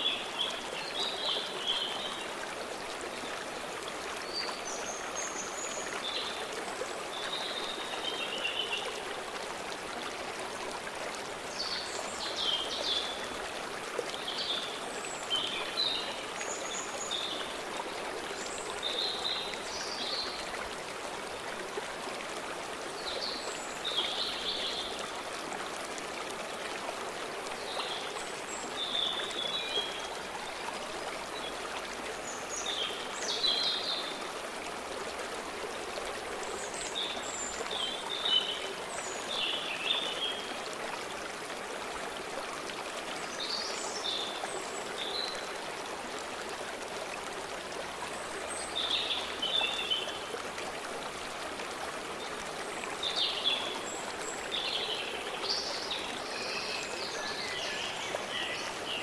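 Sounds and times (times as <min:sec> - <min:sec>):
stream rushing: 0:00.0 - 0:59.0
songbirds chirping: 0:52.1 - 0:59.0.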